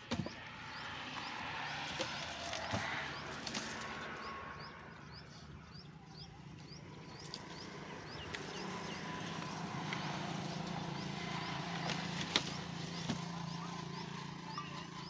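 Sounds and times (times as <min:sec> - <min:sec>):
sharp wooden knocks: 0:00.0 - 0:00.4
vehicle engine hum passing: 0:00.0 - 0:15.0.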